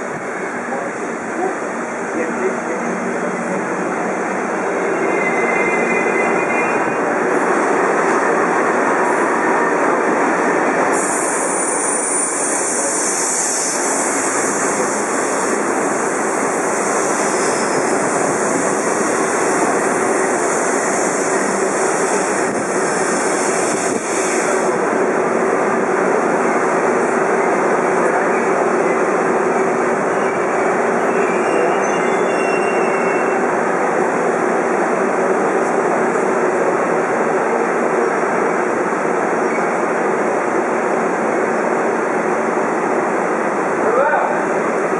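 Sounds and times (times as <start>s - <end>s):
high hiss: 10.9s - 24.8s.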